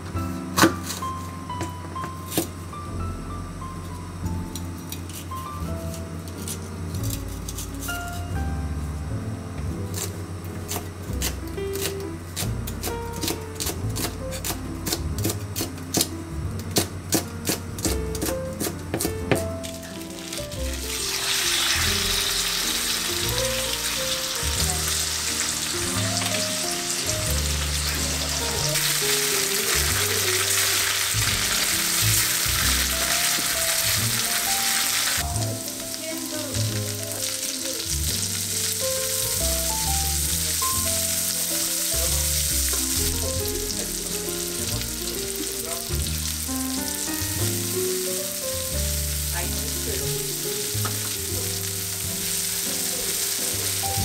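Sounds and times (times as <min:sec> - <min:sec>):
soft background music: 0:00.0 - 0:54.0
food sizzling in hot oil: 0:19.6 - 0:54.0.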